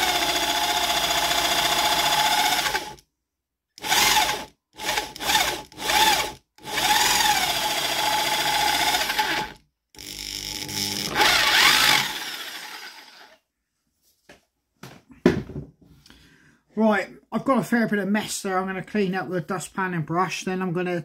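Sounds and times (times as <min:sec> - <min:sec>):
electric drill boring wood: 0:00.0 - 0:03.0, 0:03.8 - 0:13.4.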